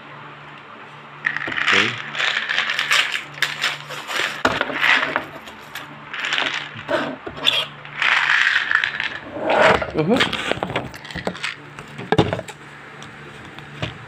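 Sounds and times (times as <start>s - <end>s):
tablets rattling in plastic bottle: 1.3s - 6.9s, 7.9s - 9.2s, 10.6s - 11.6s.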